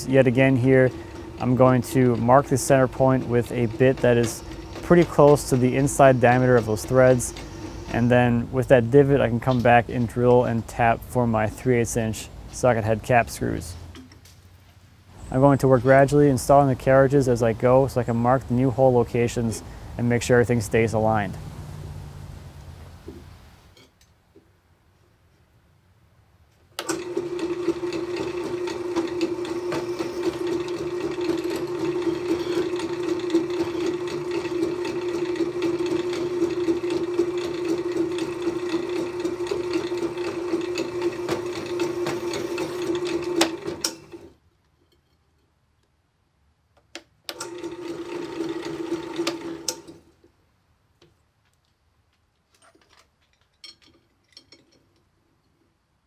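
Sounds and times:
drill press motor hum: 0.0s - 8.1s, 26.8s - 44.3s, 47.3s - 50.0s
light metal clinks: 52.6s - 55.6s.

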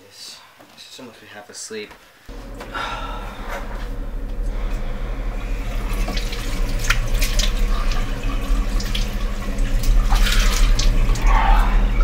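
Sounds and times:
steady low hum: 2.2s - 12.0s
water splashing by hand: 5.8s - 11.6s.

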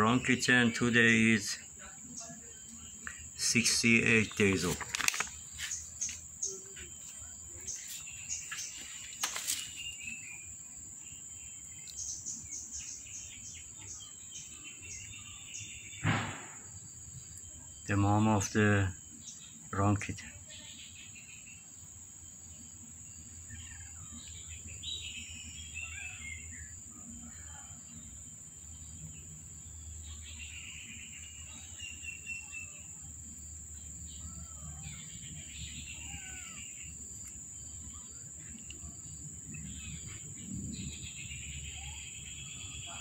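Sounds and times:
high-pitched insect drone: 20.2s - 43.0s.

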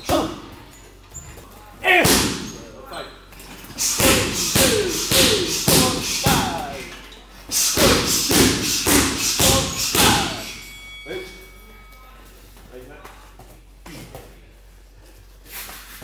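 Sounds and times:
strikes thudding: 1.9s - 2.6s
person grunting or shouting: 3.8s - 6.9s.

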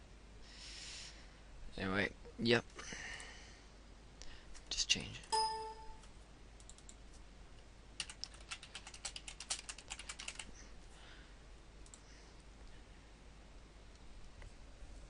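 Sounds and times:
computer keyboard typing: 5.3s - 7.0s, 8.0s - 10.5s.

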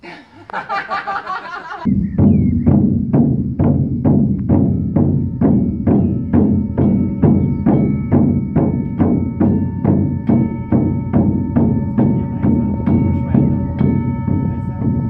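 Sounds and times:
drum beaten in steady rhythm: 0.6s - 15.0s
singing bowl ringing: 4.6s - 15.0s.

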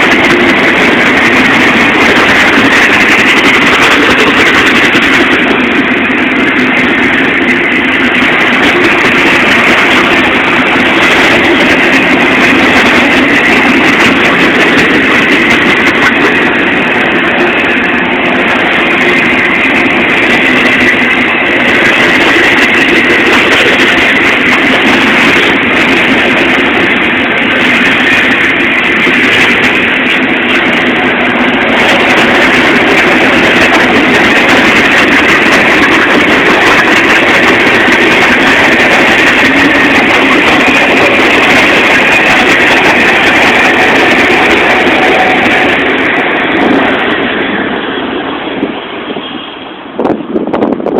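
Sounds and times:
freight train wheels on rail: 0.0s - 50.9s.

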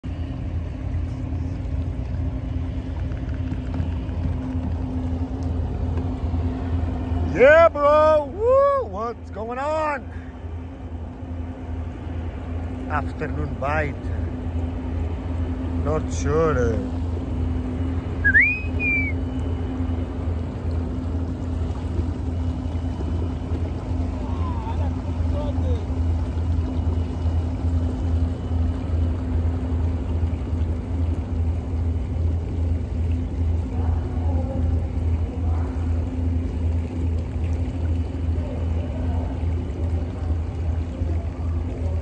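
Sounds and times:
constant hum: 0.0s - 42.0s
motor low rumble: 0.0s - 42.0s
whistle-like call: 18.2s - 19.2s.

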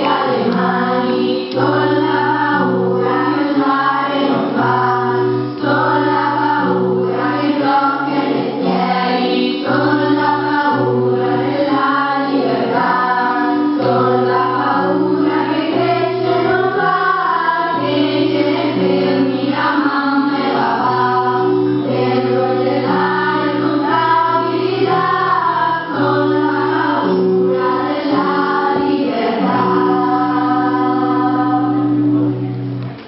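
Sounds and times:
group of voices singing: 0.0s - 32.4s.

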